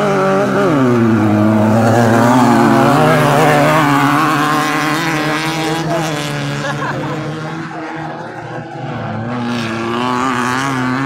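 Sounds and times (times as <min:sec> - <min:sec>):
race buggy engine revving: 0:00.0 - 0:11.0.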